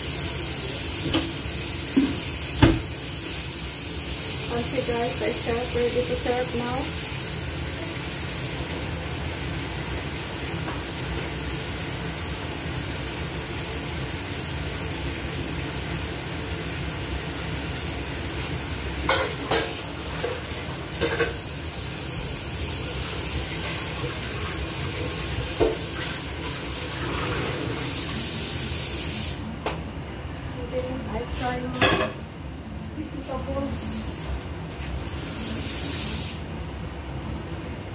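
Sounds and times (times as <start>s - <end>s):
stove hissing: 0.0s - 29.6s
pots and dishes clinking: 19.0s - 21.5s, 31.8s - 32.2s.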